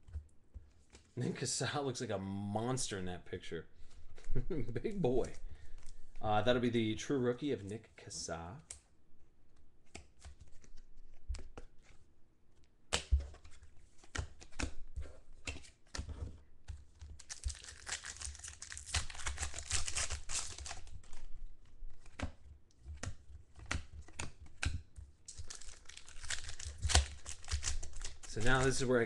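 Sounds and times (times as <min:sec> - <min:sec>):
cards tapping and clicking on table: 0:12.9 - 0:17.2
foil wrapper crinkling and tearing: 0:17.2 - 0:21.3, 0:25.3 - 0:29.0.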